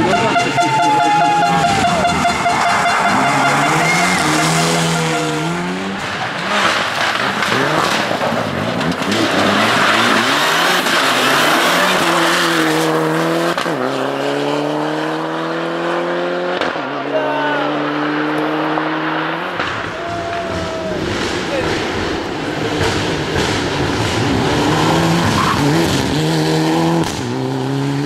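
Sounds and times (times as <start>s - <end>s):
rally car engine revving: 0.0s - 28.0s
tyres on gravel rushing: 2.2s - 14.0s, 19.6s - 26.4s.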